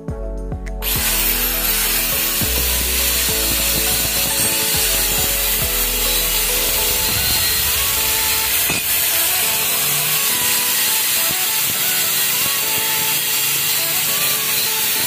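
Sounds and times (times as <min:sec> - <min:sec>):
angle grinder grinding steel: 0:00.8 - 0:15.0.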